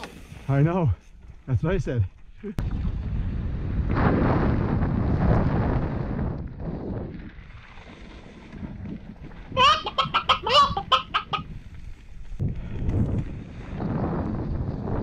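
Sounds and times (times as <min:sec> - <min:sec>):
wind rumble: 0:02.6 - 0:15.0
chicken squawks: 0:09.6 - 0:11.4
bike tyres on dirt trail: 0:11.4 - 0:15.0.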